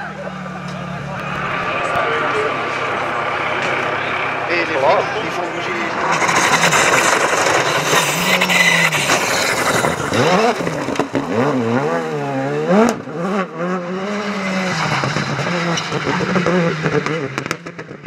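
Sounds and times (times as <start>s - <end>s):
rally car engines revving hard: 0.0s - 18.0s
tyres on loose gravel: 5.6s - 11.4s.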